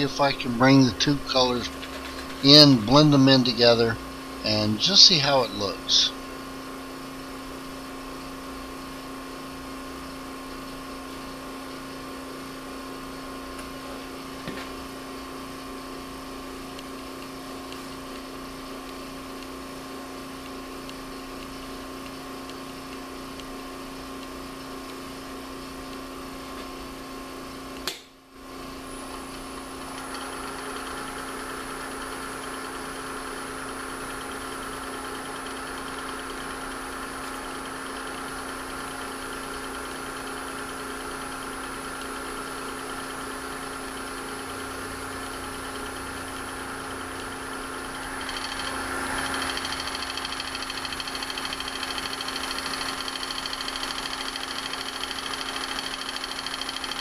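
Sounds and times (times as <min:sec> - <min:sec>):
wood lathe humming: 0:29.6 - 0:57.0.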